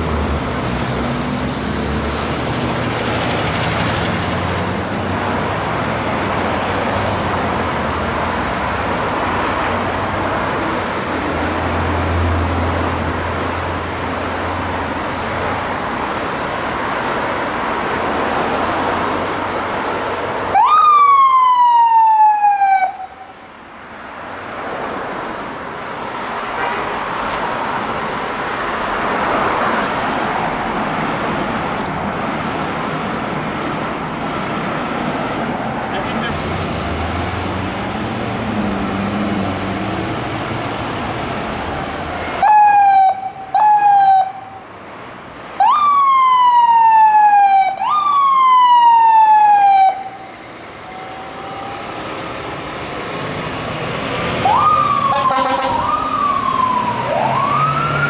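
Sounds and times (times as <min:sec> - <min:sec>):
street traffic: 0:00.0 - 0:58.0
fire truck siren whoop: 0:20.5 - 0:23.4, 0:42.2 - 0:44.6, 0:45.6 - 0:52.5, 0:54.2 - 0:58.0.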